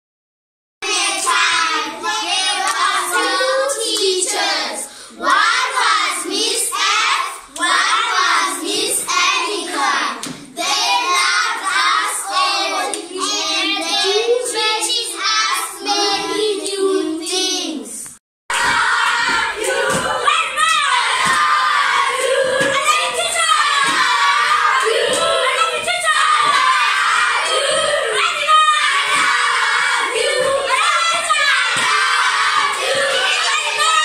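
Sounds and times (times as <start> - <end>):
children singing together: 0.8 - 34.0
hand claps: 18.6 - 26.7, 31.6 - 33.9.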